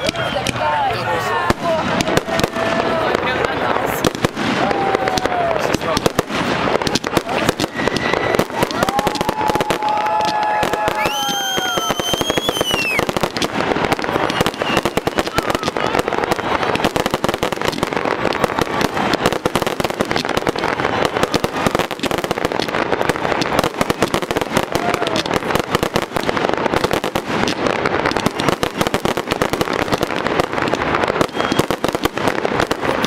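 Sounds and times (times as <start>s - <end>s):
fireworks cracks and bangs: 0.0s - 33.0s.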